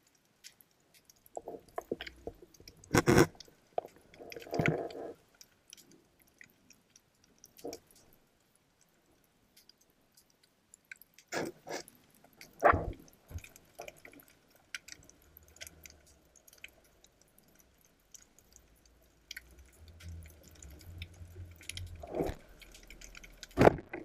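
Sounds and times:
faint underwater crackles and clicks: 0.0s - 24.0s
low steady hum: 11.9s - 24.0s.

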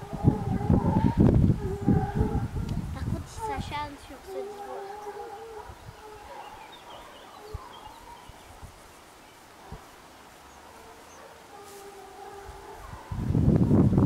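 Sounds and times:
distant hounds baying: 0.0s - 8.6s, 9.6s - 13.3s
bird chirps: 6.2s - 9.4s.

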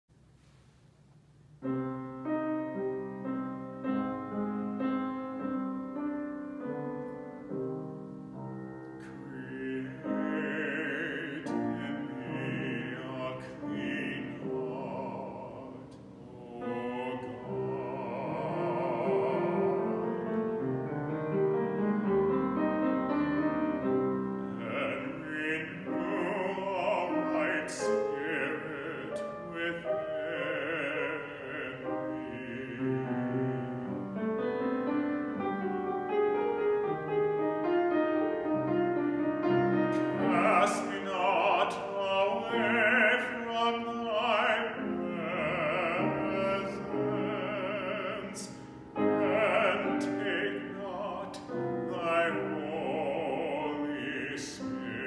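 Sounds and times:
piano accompaniment: 1.5s - 55.0s
man singing operatically: 9.0s - 20.6s, 23.1s - 34.4s, 39.7s - 55.0s.

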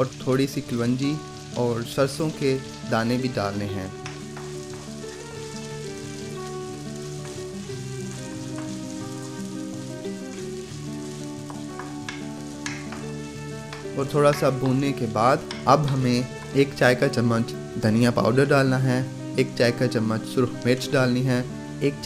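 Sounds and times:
onions sizzling in butter: 0.0s - 22.0s
soft background music: 0.0s - 22.0s
wooden spatula scraping wok: 2.2s - 17.3s.

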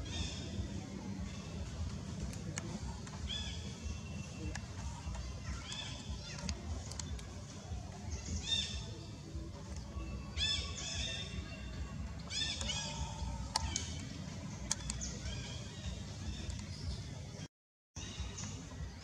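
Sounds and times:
sharp clicks: 4.4s - 7.4s, 12.5s - 15.3s
high squeaky animal calls: 12.3s - 14.0s.

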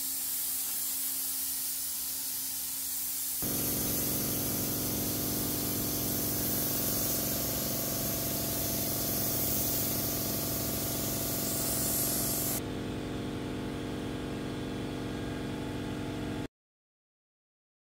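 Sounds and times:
paint spray gun hissing: 0.0s - 12.6s
low machine hum: 3.4s - 16.5s.

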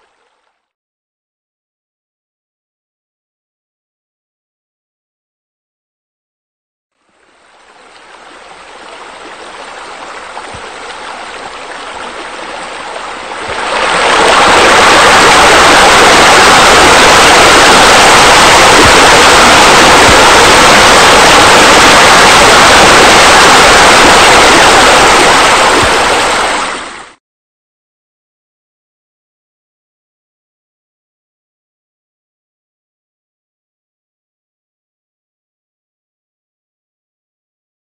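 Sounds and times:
water splashing from waterfalls: 7.2s - 27.2s.

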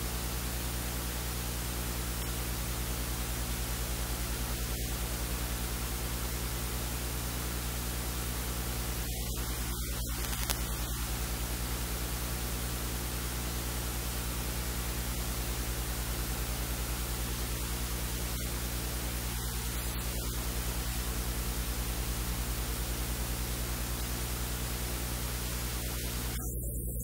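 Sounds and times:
low electrical hum: 0.0s - 27.0s
steady hiss: 6.2s - 12.8s, 16.3s - 21.5s, 22.9s - 27.0s
faint click: 9.7s - 11.0s.

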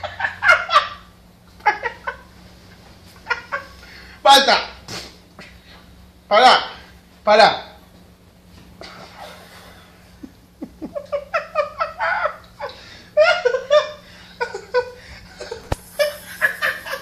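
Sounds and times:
person laughing: 9.2s - 17.0s.

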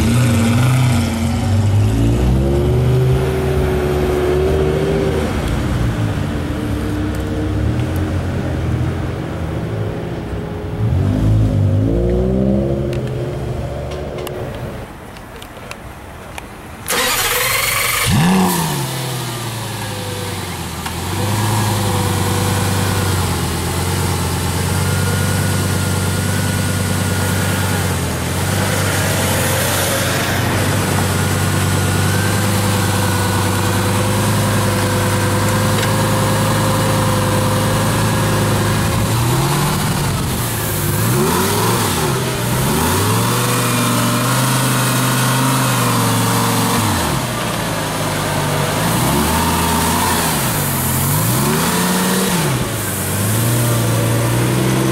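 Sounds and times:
sports car engine revving: 0.0s - 6.2s, 16.9s - 54.9s.

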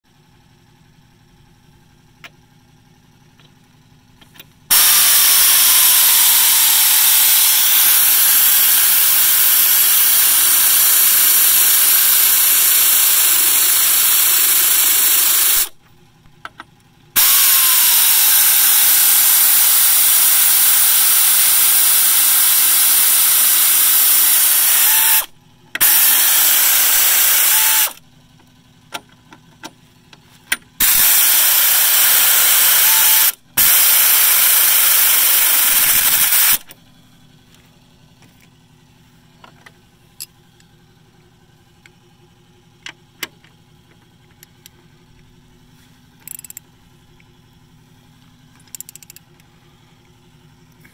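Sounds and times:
power ratchet whirring: 4.3s - 15.8s, 17.1s - 28.0s, 30.5s - 36.8s, 46.2s - 46.7s, 48.6s - 49.3s
small clicks: 46.2s - 47.3s, 48.5s - 50.9s.

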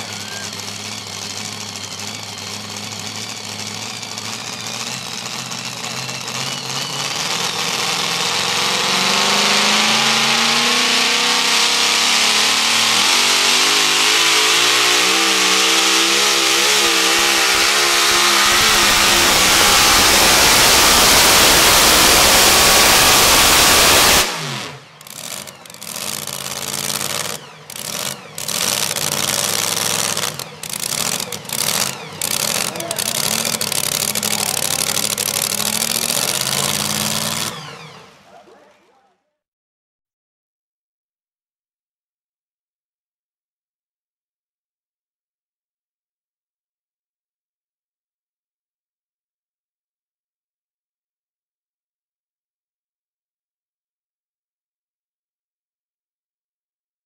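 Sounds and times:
supercharged truck engine: 0.0s - 39.2s.

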